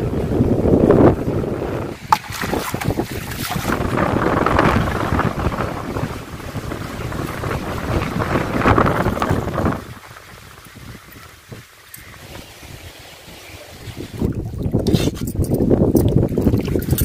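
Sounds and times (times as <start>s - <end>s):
wind rumbling on microphone: 0.0s - 17.0s
water splashing as someone wades: 2.0s - 13.3s
pot dipping into water: 2.1s - 4.2s.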